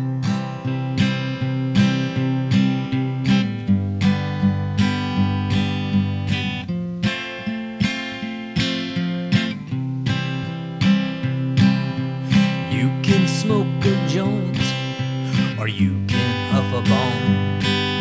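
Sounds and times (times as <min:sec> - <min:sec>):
acoustic guitar strumming chords: 0:00.0 - 0:18.0.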